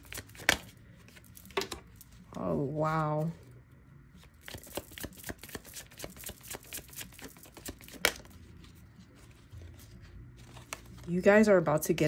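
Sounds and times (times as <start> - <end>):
cards being shuffled: 0.0 - 2.4, 4.1 - 11.3.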